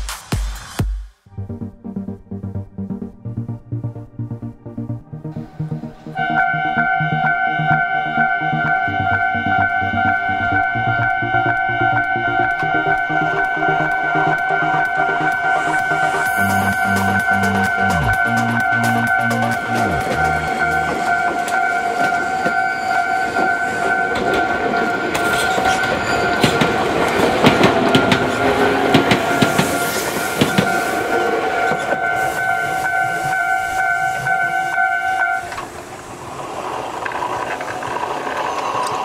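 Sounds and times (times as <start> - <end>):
crossing warning bell ringing: 6.2 - 35.6
train wheels clacking: 9.6 - 34.8, 35.4 - 39.0.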